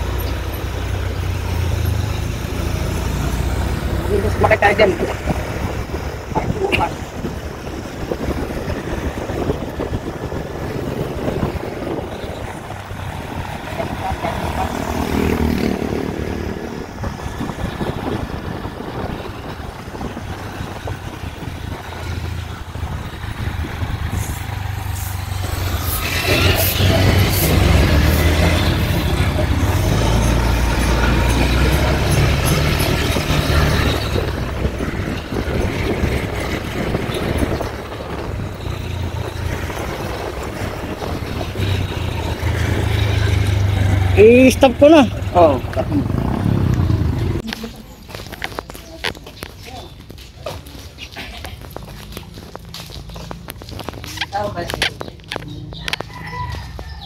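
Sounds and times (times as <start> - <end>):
motorcycle engine: 0.0 - 50.2
wind rumble on microphone: 3.6 - 44.2.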